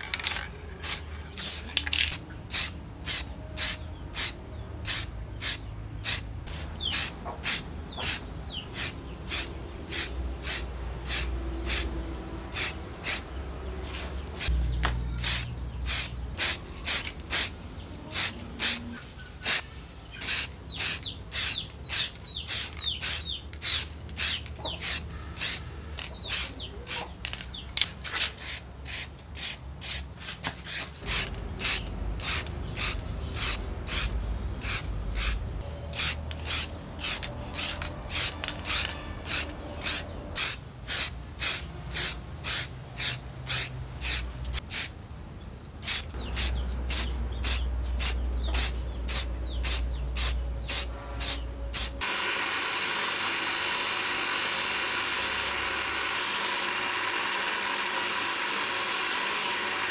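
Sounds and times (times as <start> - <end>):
birds chirping: 0.0 - 10.4, 11.6 - 27.8, 31.0 - 40.4, 44.3 - 52.0
spray paint can hissing: 0.0 - 13.3, 14.4 - 14.6, 15.2 - 19.6, 20.2 - 27.6, 28.4 - 44.9, 45.8 - 59.9.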